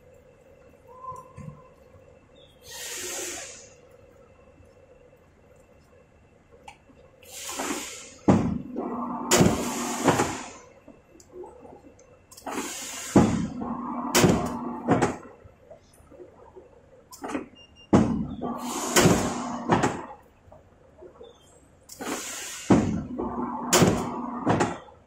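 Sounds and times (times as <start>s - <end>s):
hydraulic hum: 0.0s - 25.0s
rising hydraulic hiss: 2.6s - 3.8s, 7.2s - 8.4s, 9.3s - 10.6s, 12.5s - 13.6s, 18.4s - 19.7s, 22.0s - 23.0s.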